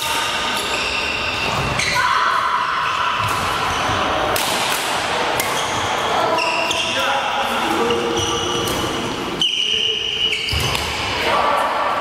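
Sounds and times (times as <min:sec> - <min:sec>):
racket hitting shuttlecock: 0:04.3 - 0:05.7.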